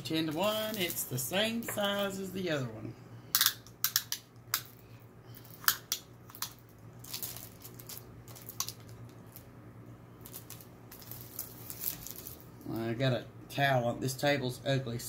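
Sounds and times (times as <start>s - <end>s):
low steady hum: 0.0s - 15.0s
plastic packaging crinkling: 0.2s - 2.1s, 5.4s - 9.5s, 10.2s - 12.8s.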